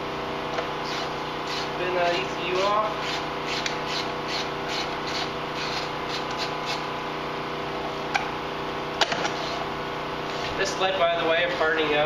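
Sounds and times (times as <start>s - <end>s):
background hum: 0.0s - 7.1s
hand ratchet clicking: 3.0s - 6.8s.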